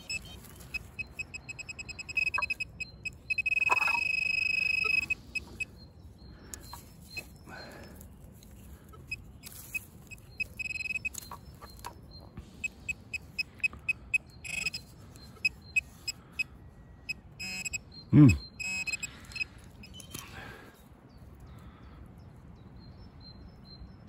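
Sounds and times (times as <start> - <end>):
metal detector beeping: 0.0 - 5.8, 6.5 - 7.7, 8.9 - 20.2.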